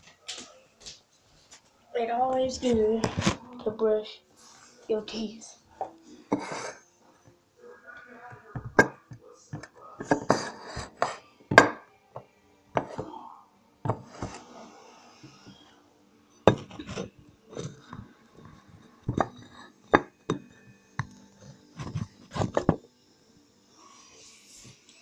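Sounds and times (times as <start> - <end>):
hard objects knocking and clattering: 5.8 - 6.8, 8.3 - 13.2, 13.9 - 14.4, 16.4 - 21.2, 21.8 - 22.9.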